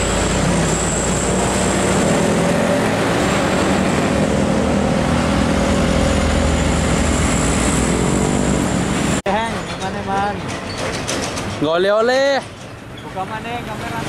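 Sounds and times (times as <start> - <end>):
truck diesel engine running: 0.0 - 9.2
tyre and road noise: 0.0 - 14.0.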